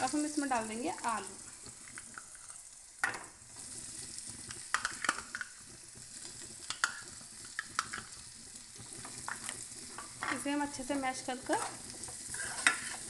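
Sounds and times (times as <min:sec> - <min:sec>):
oil sizzling in a pan: 0:00.0 - 0:13.0
metal spoon scraping a pan: 0:01.9 - 0:02.7, 0:09.0 - 0:10.5, 0:11.4 - 0:13.0.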